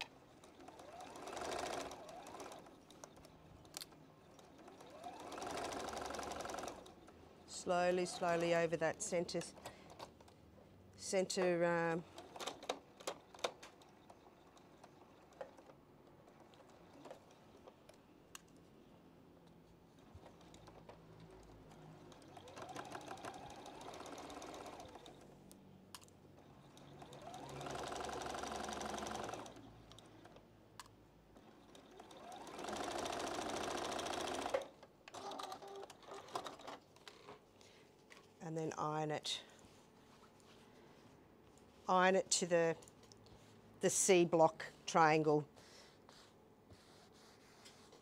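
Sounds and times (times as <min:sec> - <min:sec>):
sewing machine stitching: 0:00.0 - 0:03.4, 0:04.3 - 0:07.0, 0:20.1 - 0:25.3, 0:26.6 - 0:30.4, 0:31.4 - 0:36.8.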